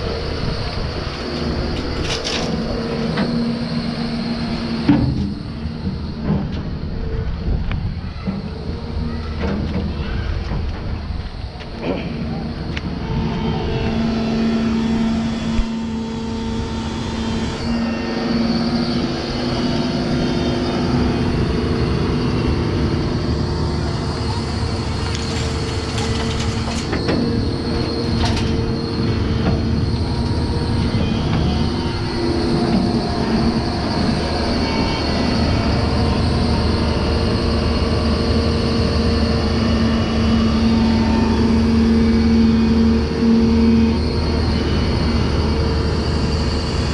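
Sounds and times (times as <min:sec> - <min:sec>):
excavator diesel engine drone: 0:00.0 - 0:46.9
metallic squeals and clanks: 0:11.8 - 0:46.9.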